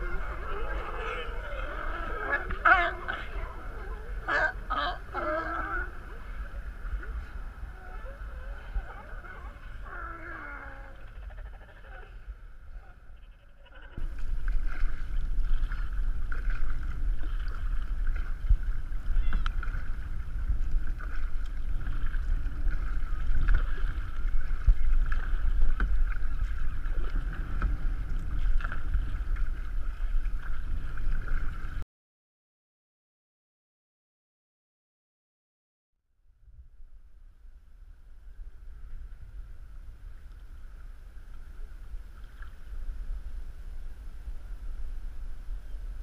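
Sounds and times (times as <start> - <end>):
wind rumble on microphone: 0.0 - 31.8, 36.2 - 46.0
water splashing from paddling: 14.0 - 31.8.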